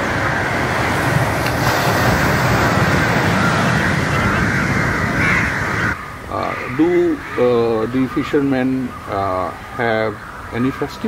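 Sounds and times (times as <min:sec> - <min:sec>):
waves breaking on beach: 0:00.0 - 0:06.0.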